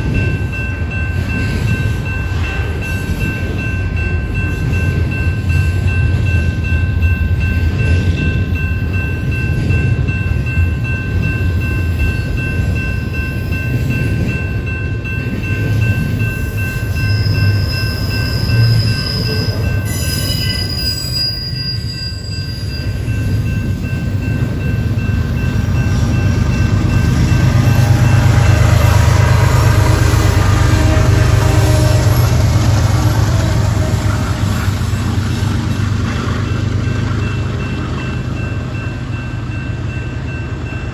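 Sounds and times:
diesel locomotive engines running: 0:00.0 - 0:40.9
freight train wheels rumbling on rail: 0:00.0 - 0:40.9
high wheel squeal: 0:16.9 - 0:23.2.

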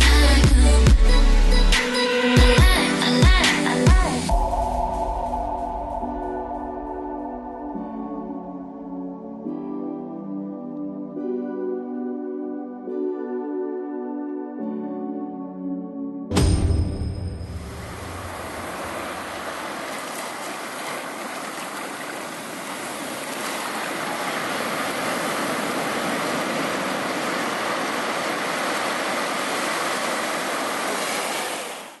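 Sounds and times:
small waves breaking on beach: 0:17.7 - 0:32.0.

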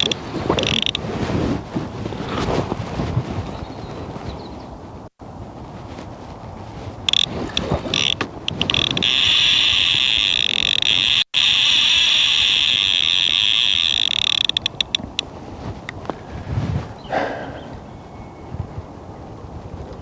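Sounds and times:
fishing reel drag screaming: 0:00.0 - 0:01.0, 0:07.9 - 0:15.2.

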